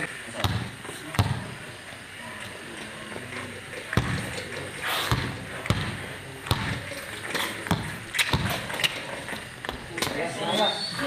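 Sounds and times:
basketball bouncing on hard court: 0.4s - 1.5s, 3.9s - 4.5s, 5.1s - 9.1s.

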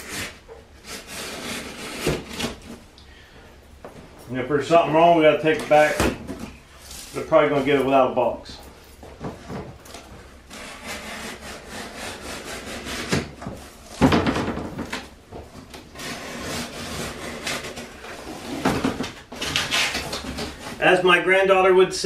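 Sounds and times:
cardboard scraping and rustling: 9.2s - 20.9s.

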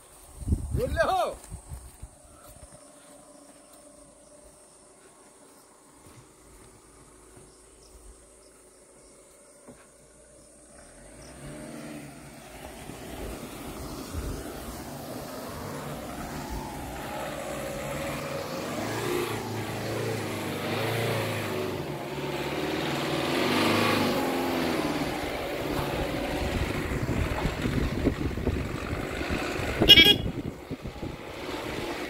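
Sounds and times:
diesel truck engine passing: 10.1s - 32.0s
truck horn toot: 29.8s - 30.4s.

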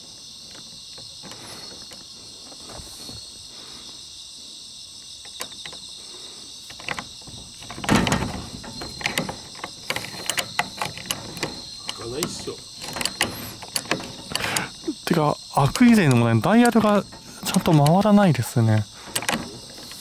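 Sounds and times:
insects chirring: 0.0s - 20.0s
lock dial clicking and rattling: 6.6s - 20.0s
heavy metal clunk: 6.8s - 15.1s.

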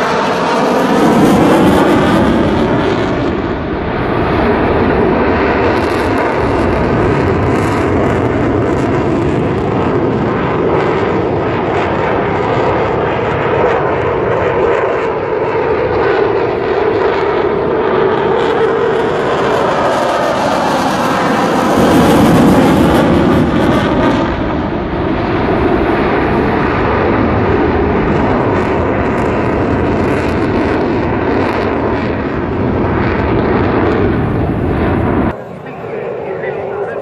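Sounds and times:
jet fighter flying overhead: 0.0s - 37.0s.

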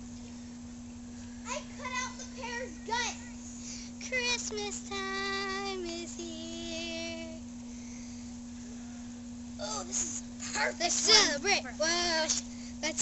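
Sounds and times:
girl singing long notes: 4.0s - 7.5s.

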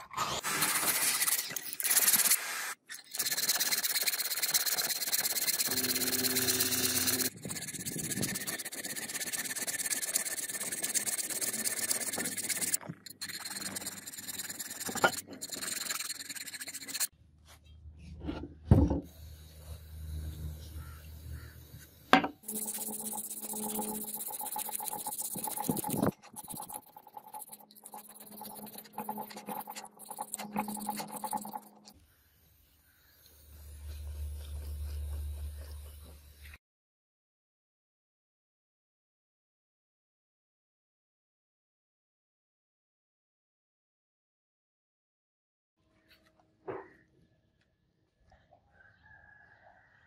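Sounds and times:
sandpaper rubbing on brass: 0.4s - 17.1s, 21.4s - 31.8s
file rasping on brass: 3.2s - 17.1s, 22.5s - 31.7s.

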